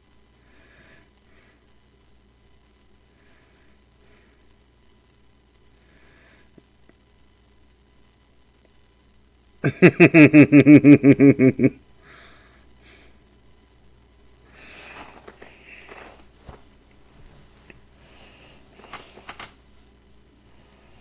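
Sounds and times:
person laughing: 9.6 - 11.8.

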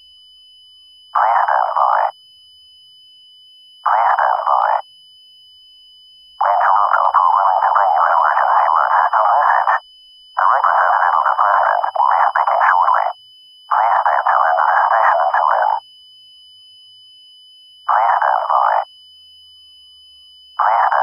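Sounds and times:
faint high-pitched tone: 0.0 - 21.0
warbling digital data bursts: 1.2 - 2.2, 3.8 - 4.9, 6.4 - 9.8, 10.4 - 15.9, 17.8 - 19.1, 20.5 - 21.0.

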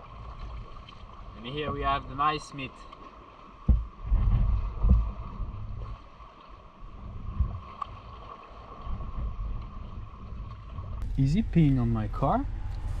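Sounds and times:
wind buffeting microphone: 3.6 - 6.0, 6.9 - 13.0.

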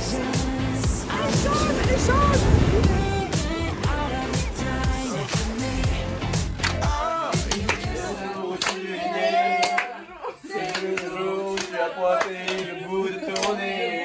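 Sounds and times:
voices singing together: 0.0 - 14.0
rhythmic hand claps: 3.3 - 13.9.

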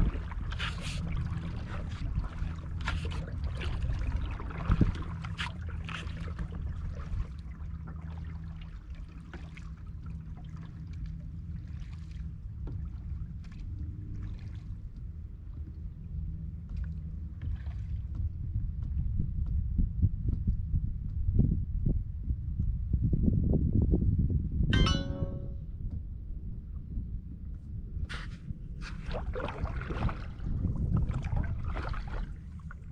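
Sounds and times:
paddle splashing water: 0.0 - 15.0, 16.7 - 18.1, 28.1 - 32.9
steady low rumble: 0.0 - 17.4, 25.3 - 32.9.

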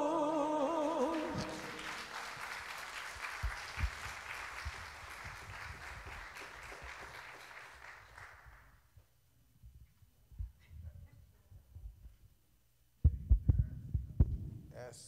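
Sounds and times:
congregation applauding: 0.6 - 8.8.

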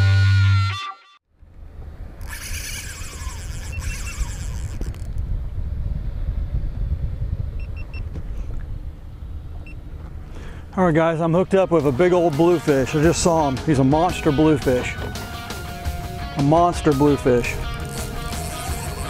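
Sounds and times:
wind buffeting microphone: 1.4 - 12.3
camera mount rattling and scraping: 17.6 - 19.0.

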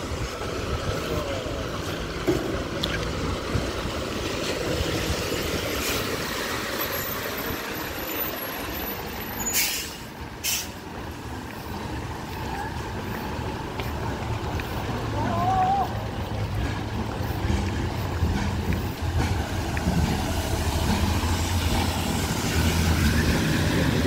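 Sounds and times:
truck engine rumble: 0.0 - 24.0
tyre noise on wet road: 0.0 - 24.0
air-brake hisses: 9.4 - 10.8.

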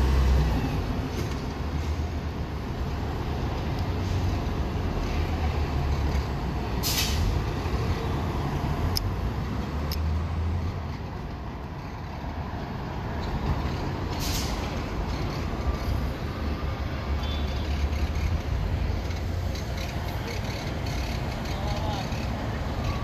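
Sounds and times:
traffic rumble: 0.0 - 23.0
short hiss: 6.8 - 7.3, 14.2 - 14.6.

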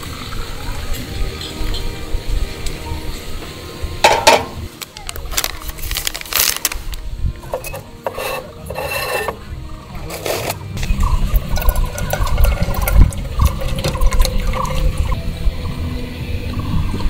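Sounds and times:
paper rustling and crinkling: 4.8 - 7.0.

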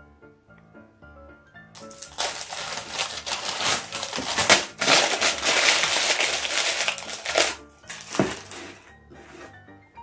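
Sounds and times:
paper wrapper crinkling: 1.8 - 8.9.

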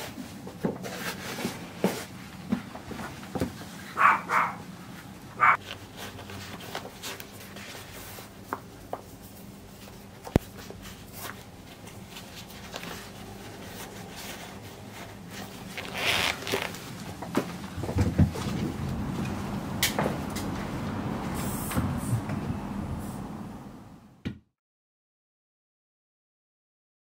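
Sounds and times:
rustling and scuffing of shoes: 0.0 - 19.2.

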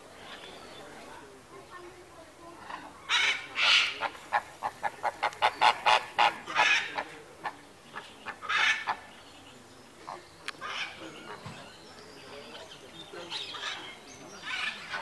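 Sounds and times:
flamingos honking: 2.6 - 9.1.

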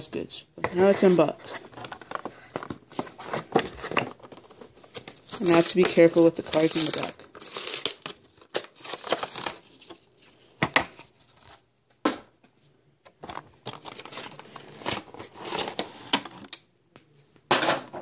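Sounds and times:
plastic packaging crinkling: 1.5 - 10.5.

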